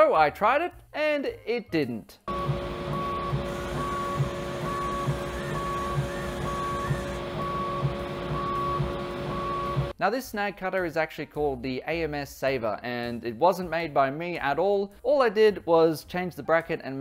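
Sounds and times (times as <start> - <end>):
feed motor whining: 2.3 - 9.9
high pulsing tone: 2.3 - 9.9.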